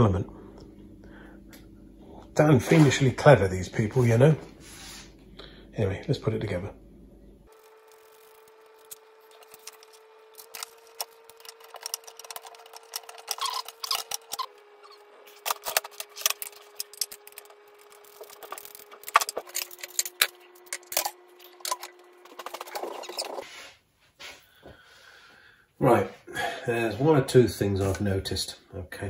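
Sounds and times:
metal and plastic parts rattling: 0:07.9 - 0:23.4.

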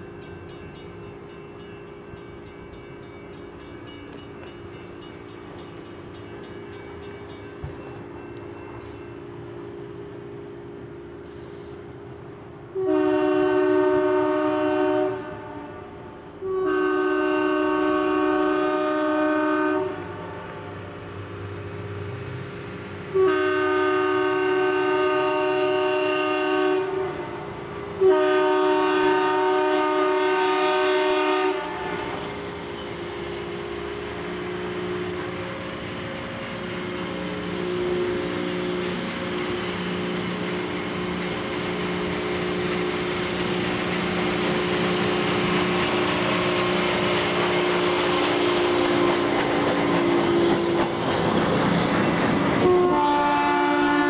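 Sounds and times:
locomotive air horn blasts: 0:12.8 - 0:20.5, 0:23.1 - 0:27.4, 0:28.0 - 0:32.1, 0:52.6 - 0:54.0
locomotive engine running: 0:32.2 - 0:52.8.

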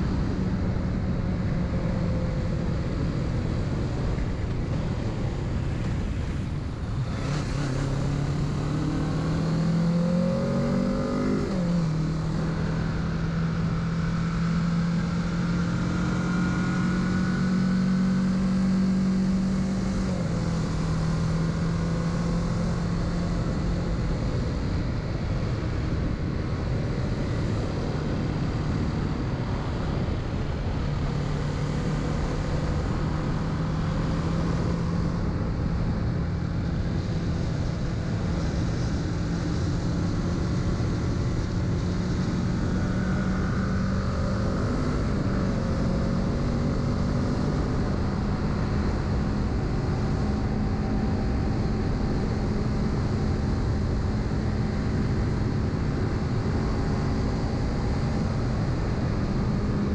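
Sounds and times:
motorcycle engine revving: 0:07.0 - 0:24.0.

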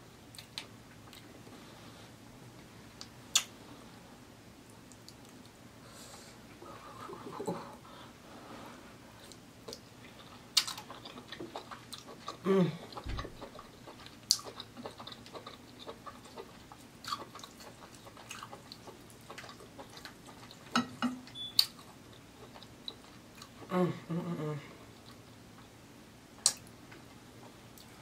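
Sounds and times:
wet chewing: 0:09.2 - 0:23.6
person humming: 0:12.4 - 0:13.0, 0:23.6 - 0:24.8.

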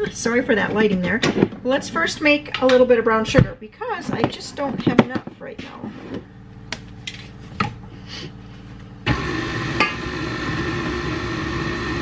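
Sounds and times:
stand mixer humming: 0:09.0 - 0:12.0.

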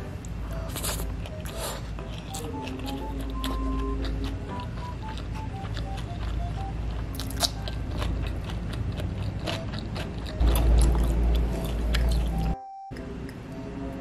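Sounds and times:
chewing food: 0:00.2 - 0:13.0
low rumble: 0:10.4 - 0:12.6.

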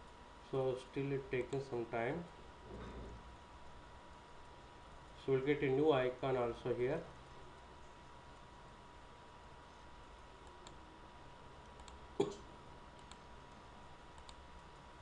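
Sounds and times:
faint steady whine: 0:00.0 - 0:15.0
computer mouse clicks: 0:10.4 - 0:10.8, 0:11.6 - 0:12.0, 0:13.0 - 0:13.2, 0:14.1 - 0:14.8.

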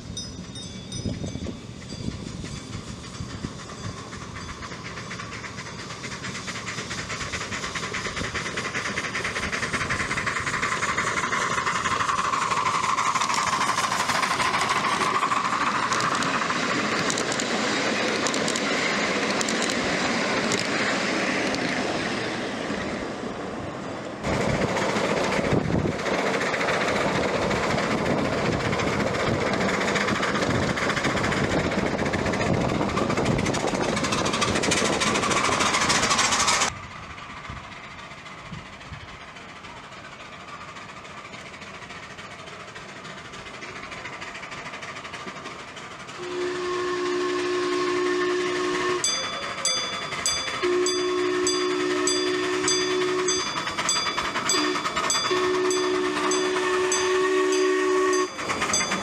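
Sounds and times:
miniature train wheels clicking: 0:00.1 - 0:23.0, 0:24.2 - 0:59.0.

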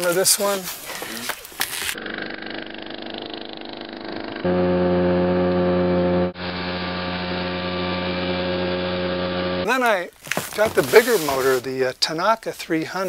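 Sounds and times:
small outboard motor running: 0:02.0 - 0:09.7.

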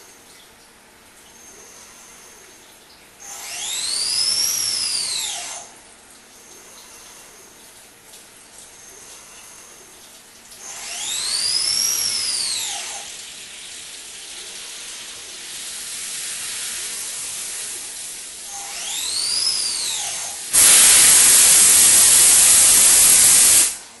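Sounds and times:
milling machine cutting metal: 0:03.3 - 0:05.6, 0:10.6 - 0:13.2, 0:15.5 - 0:23.8
loud steady hiss: 0:10.8 - 0:24.0
coolant spray hissing: 0:13.0 - 0:24.0.

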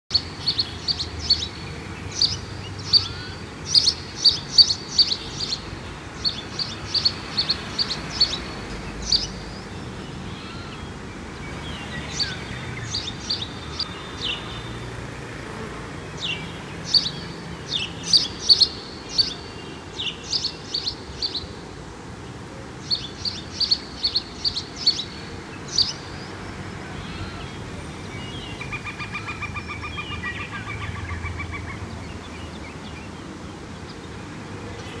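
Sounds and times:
small bird chirping: 0:00.1 - 0:09.6, 0:16.2 - 0:21.5.

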